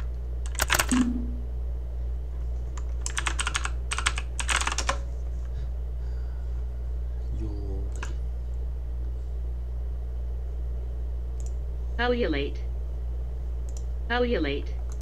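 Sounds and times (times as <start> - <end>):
keyboard key clicks: 0.0 - 1.2
steady low hum: 0.0 - 15.0.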